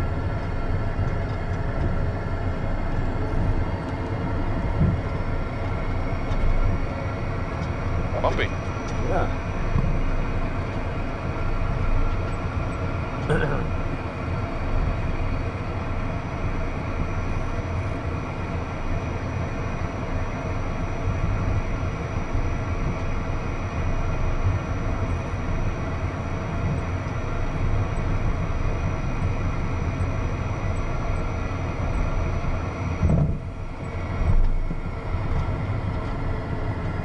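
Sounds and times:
jet engines rumbling with whine: 0.0 - 37.0.

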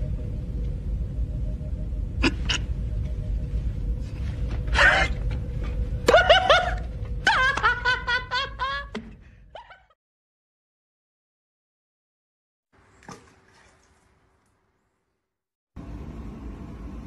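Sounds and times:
low rumble: 0.0 - 8.3.

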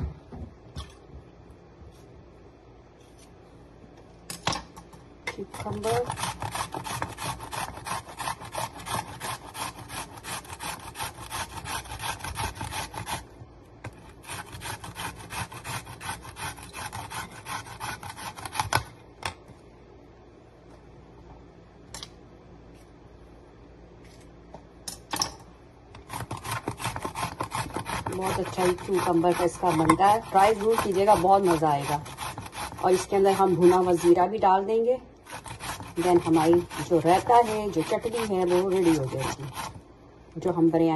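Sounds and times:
cucumber rasping on metal grater: 5.4 - 13.3, 13.9 - 18.9, 26.0 - 34.3, 35.2 - 39.8.

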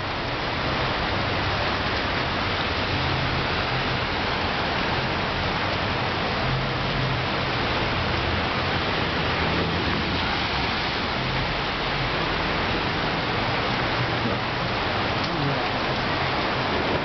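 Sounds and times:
heavy rain on a street: 0.0 - 17.0.

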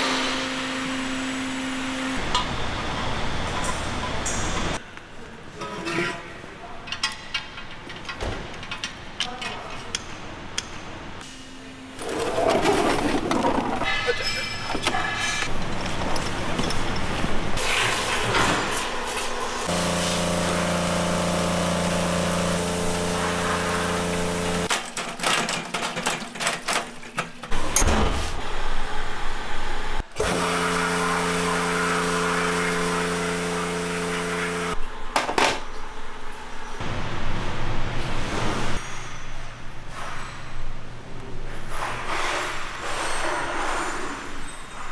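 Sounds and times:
metal parts clinking in trays: 24.7 - 27.9.

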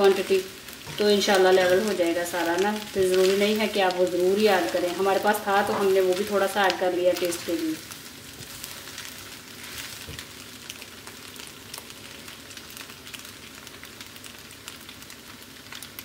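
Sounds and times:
spatula stirring in pan: 0.0 - 11.8
food sizzling in a frying pan: 0.0 - 16.0.

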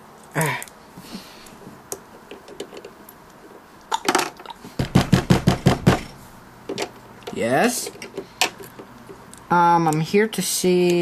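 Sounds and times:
rapid knocking on door: 4.8 - 6.2.

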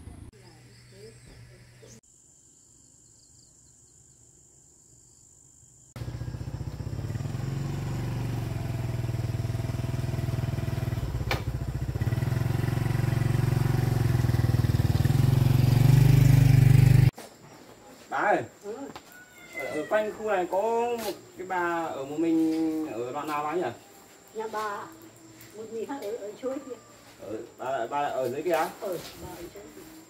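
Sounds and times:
vehicle engine running: 6.0 - 17.1.

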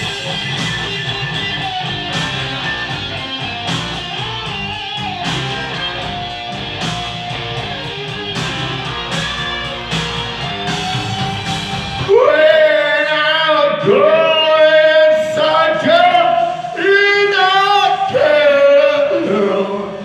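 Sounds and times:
electric guitar bending notes: 0.0 - 12.5
rock backing track: 0.0 - 12.5.

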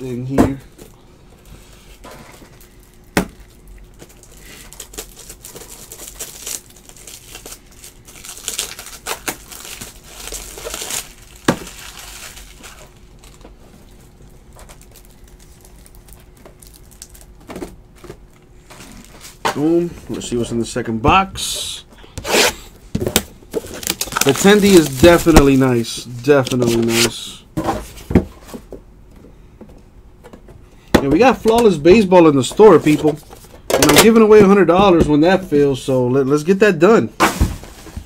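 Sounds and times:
plastic crinkling and rustling: 1.9 - 19.7, 23.0 - 27.2.

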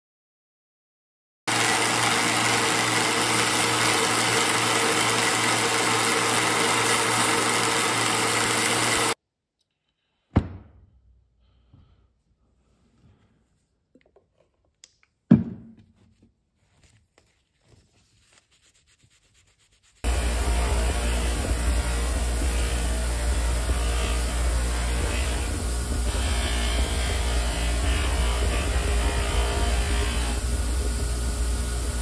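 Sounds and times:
belt grinder running: 1.5 - 9.2, 20.0 - 32.0.

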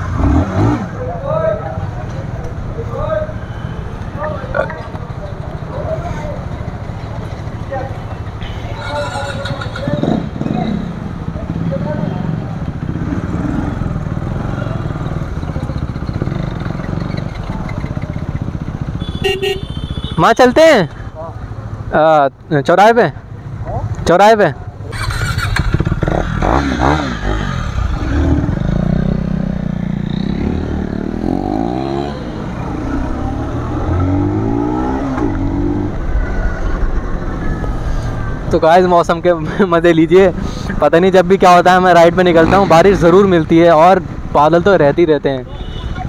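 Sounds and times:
motorcycle engines running: 0.0 - 46.0
motorcycle engine accelerating: 24.8 - 40.3.

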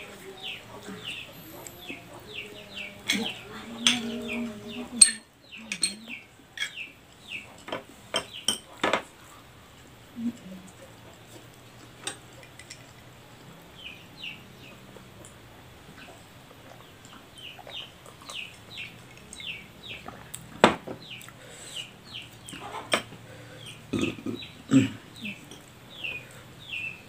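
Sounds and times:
chicks peeping: 0.0 - 7.6, 13.2 - 27.0
spoon clinking on plate: 5.0 - 6.8.

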